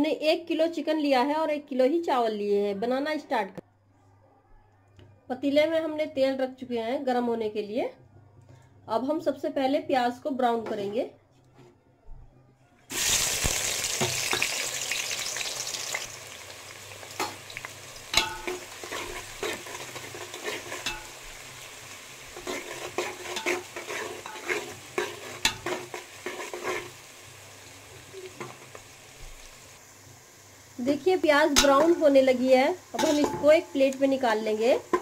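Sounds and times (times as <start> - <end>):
onions sizzling in hot oil: 12.9 - 35.0
metal spoon scraping pot: 18.2 - 21.4, 22.3 - 27.0.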